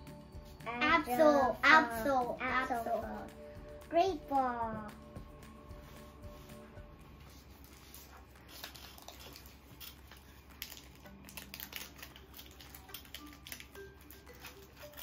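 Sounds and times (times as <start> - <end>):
cards being flipped through: 7.2 - 15.0.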